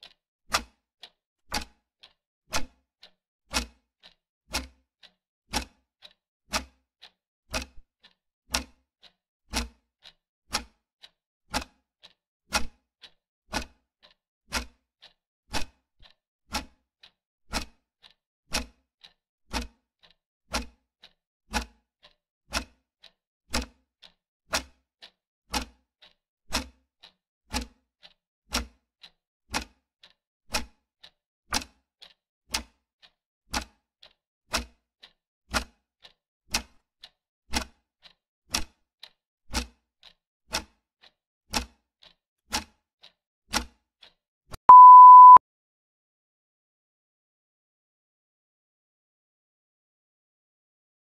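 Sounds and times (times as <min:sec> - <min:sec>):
steady high beep: 0:44.7 - 0:45.4.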